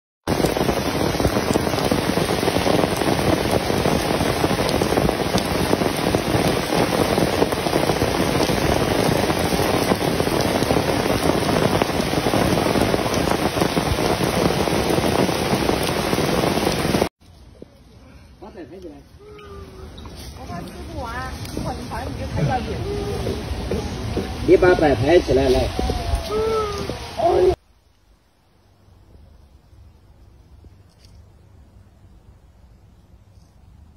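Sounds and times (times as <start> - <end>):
heavy rain on stone and leaves: 0.3 - 17.1, 18.6 - 27.6.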